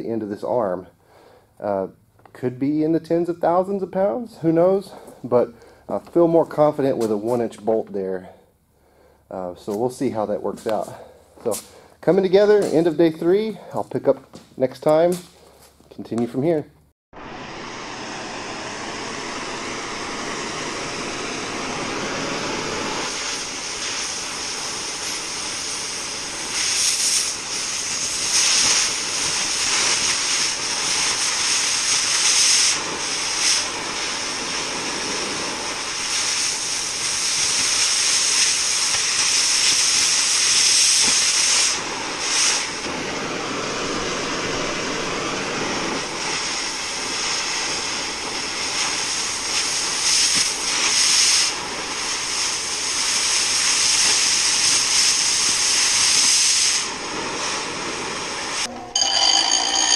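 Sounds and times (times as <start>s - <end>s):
cutting torch hissing: 8.8s - 14.0s, 17.2s - 58.7s
oxygen jet blowing through steel: 9.3s - 14.1s, 17.2s - 59.9s.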